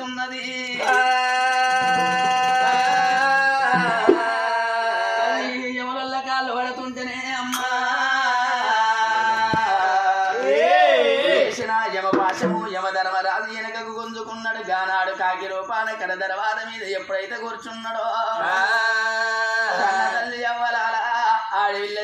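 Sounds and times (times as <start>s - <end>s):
person singing: 0.0s - 5.7s
sharp drum strokes: 1.6s - 4.5s, 12.2s - 12.8s.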